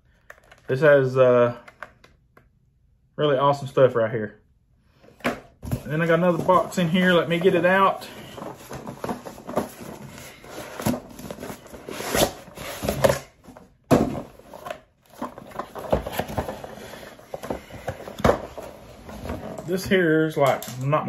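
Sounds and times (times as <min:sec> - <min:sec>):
rustling and scraping: 0:05.6 - 0:20.7.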